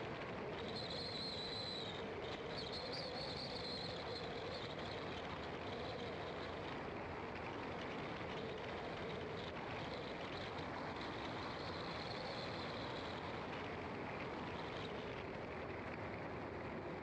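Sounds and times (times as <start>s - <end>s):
car engine and tyre noise: 0.0s - 17.0s.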